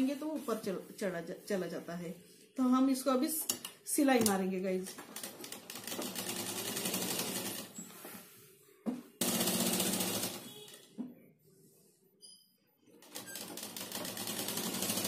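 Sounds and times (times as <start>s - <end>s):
sewing machine stitching: 9.2s - 10.8s, 13.0s - 15.0s.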